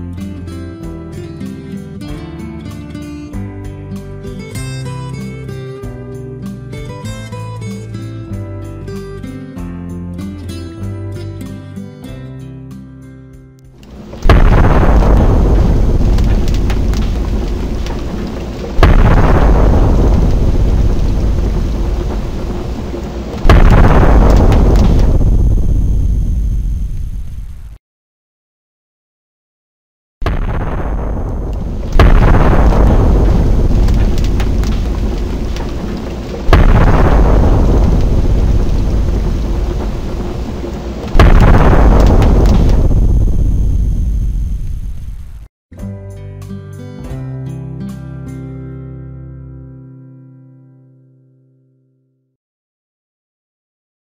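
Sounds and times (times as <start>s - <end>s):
explosion rumbling: 13.8s - 27.7s, 30.2s - 45.5s.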